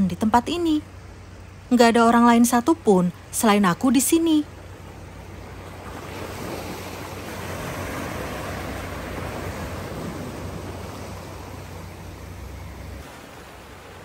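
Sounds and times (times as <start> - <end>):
wind rumble on microphone: 4.9 - 14.0.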